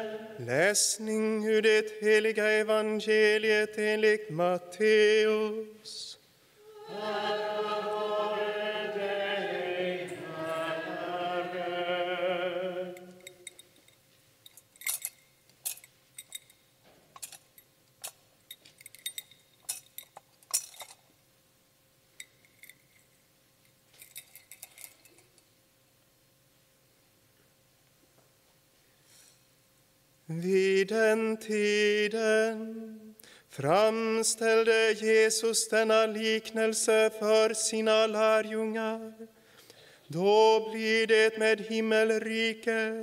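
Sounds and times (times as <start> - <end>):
person chanting: 0.0 - 13.4, 30.3 - 39.3, 40.1 - 43.0
thurible clinking against chains: 13.0 - 21.1, 22.2 - 23.2, 23.9 - 25.4.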